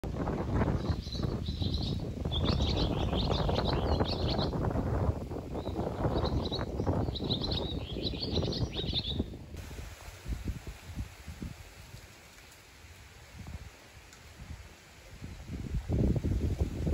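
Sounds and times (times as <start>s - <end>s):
wind on microphone: 0.0s - 12.3s, 12.9s - 16.9s
small birds twittering: 0.5s - 9.5s.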